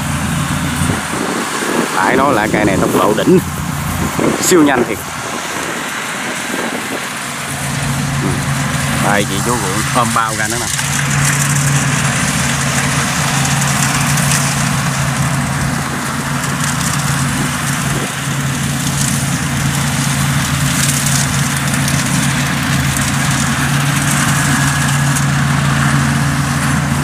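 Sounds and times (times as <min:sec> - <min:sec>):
combine harvester engine hum: 0:00.0 - 0:27.0
machinery rushing: 0:00.0 - 0:27.0.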